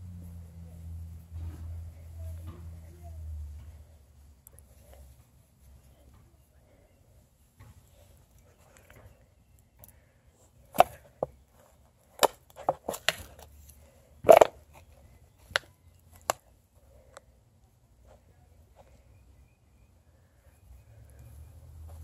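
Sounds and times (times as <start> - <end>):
twigs snapping and crunching: 12.0 - 16.4.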